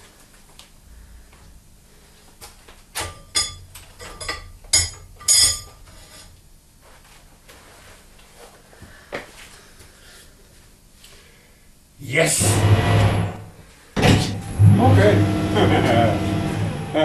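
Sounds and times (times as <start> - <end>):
steel ring clinking on metal: 3.3 - 5.8.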